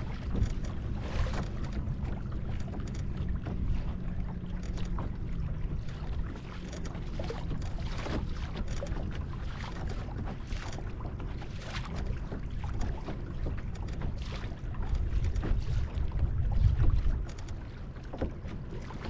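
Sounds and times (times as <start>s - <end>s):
wind buffeting microphone: 12.2s - 17.4s.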